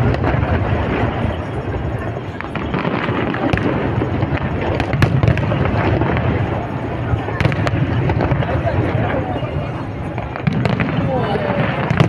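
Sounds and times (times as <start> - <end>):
fireworks booms and crackle: 0.0 - 12.0
sharp firework bangs: 0.0 - 12.0.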